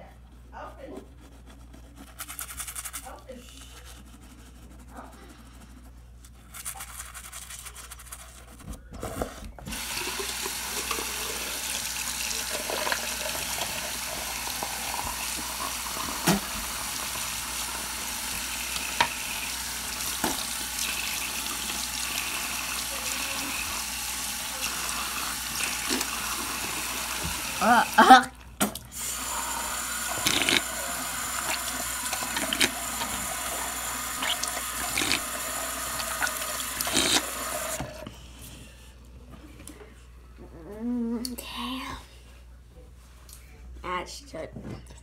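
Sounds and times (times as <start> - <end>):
toothbrush scrubbing teeth: 0.6 - 8.6, 9.7 - 28.4, 29.0 - 37.8
tap running: 9.7 - 28.0, 28.6 - 38.1.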